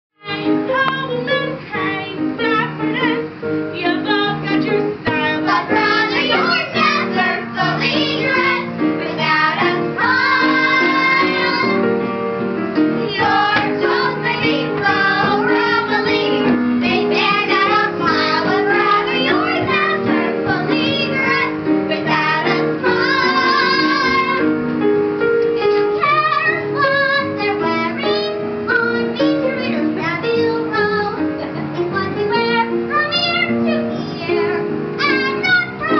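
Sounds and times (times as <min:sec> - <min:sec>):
girls singing with vibrato: 0:00.2 - 0:12.0, 0:12.9 - 0:24.6, 0:25.6 - 0:35.9
instrumental accompaniment: 0:00.2 - 0:35.9.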